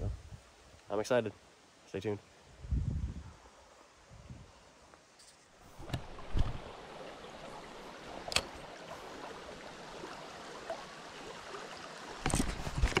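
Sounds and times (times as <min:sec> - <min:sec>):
stream running: 0:03.3 - 0:13.0.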